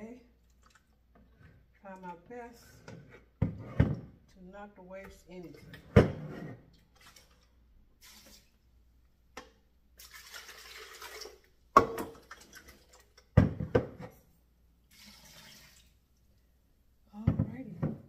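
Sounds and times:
water pouring into a blender jar: 10.0s - 11.5s, 14.9s - 16.0s.

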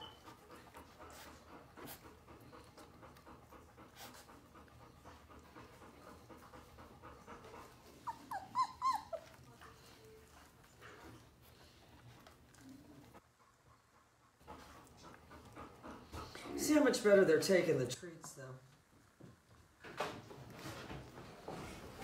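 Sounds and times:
puppy squeaks and whimpers: 7.8s - 10.1s.

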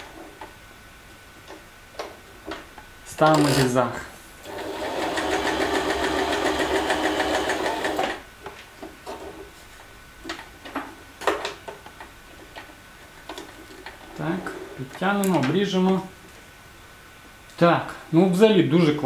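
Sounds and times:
sewing machine running: 4.4s - 8.2s.

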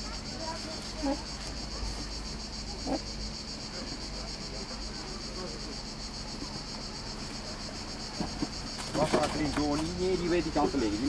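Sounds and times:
cicadas singing: 0.0s - 11.0s.

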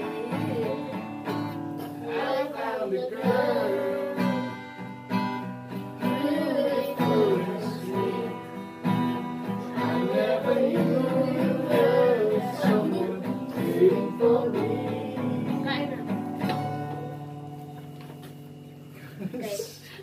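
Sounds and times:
man and children singing: 0.0s - 4.8s, 5.8s - 16.4s
acoustic guitar strumming: 0.0s - 19.2s.

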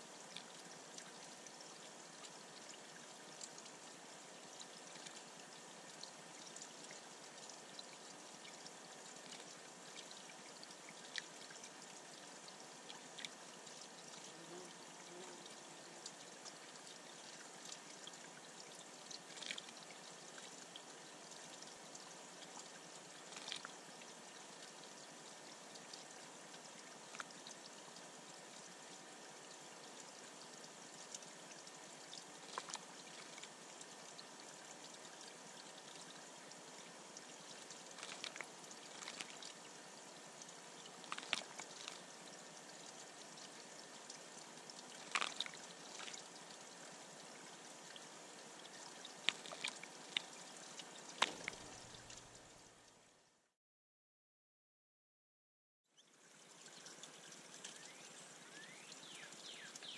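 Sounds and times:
water trickling into pond: 0.0s - 53.5s, 55.8s - 59.9s
bird splashing in water: 19.2s - 19.7s, 23.2s - 23.7s, 32.4s - 33.5s, 37.9s - 39.5s, 40.9s - 42.0s, 45.0s - 46.2s, 49.1s - 50.3s.

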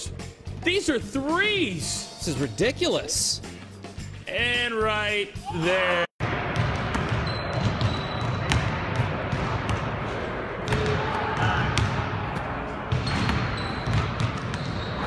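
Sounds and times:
basketballs bouncing on hardwood: 6.5s - 10.0s, 10.7s - 12.0s, 12.9s - 15.0s
shoe squeaks: 7.2s - 8.5s, 13.0s - 15.0s.

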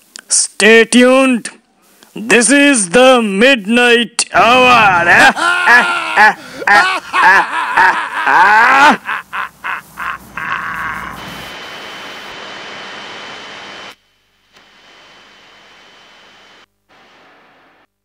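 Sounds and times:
static hiss: 0.0s - 5.1s, 6.7s - 18.0s
thin high whine: 8.8s - 17.9s
static glitch bursts: 9.2s - 14.0s.

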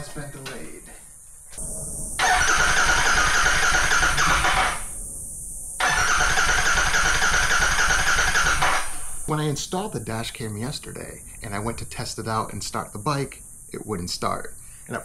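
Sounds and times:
motorcycle starter cranking engine: 2.2s - 5.0s, 5.8s - 9.3s.

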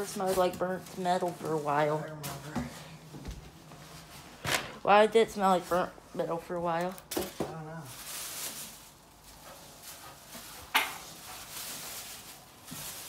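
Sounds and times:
rustling handling noise: 0.0s - 13.0s.

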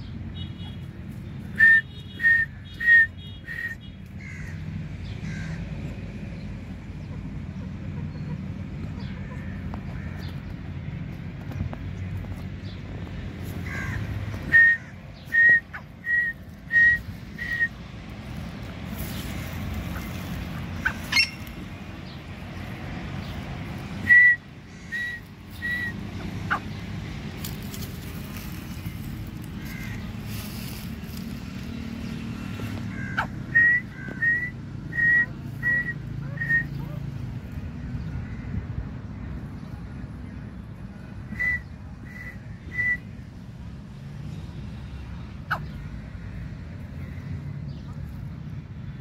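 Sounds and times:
francolin calling: 20.8s - 21.5s, 24.0s - 26.8s.

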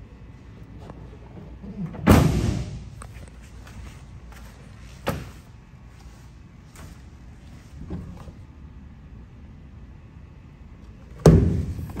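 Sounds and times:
tailgate slamming shut: 1.9s - 2.9s.

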